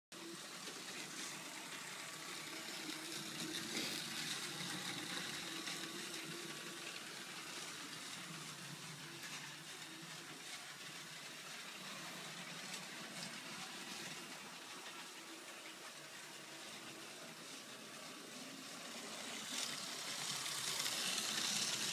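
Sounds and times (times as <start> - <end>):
toy train motor whirring: 0.2 - 21.9.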